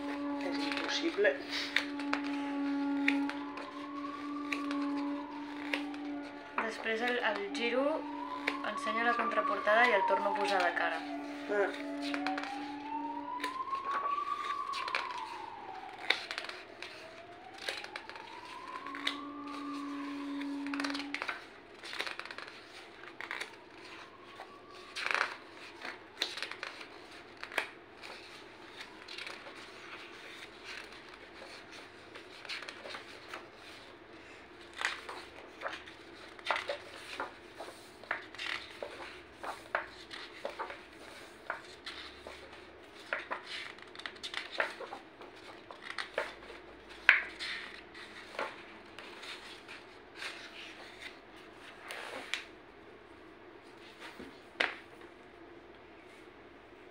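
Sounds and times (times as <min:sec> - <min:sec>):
book pages turning: 0:00.0 - 0:52.6, 0:53.6 - 0:55.0.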